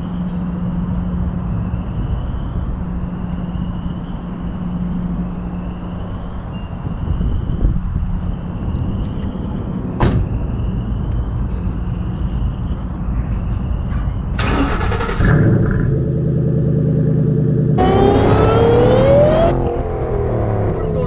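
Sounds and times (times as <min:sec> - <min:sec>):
car engine rumbling and revving: 0:14.4 - 0:21.0.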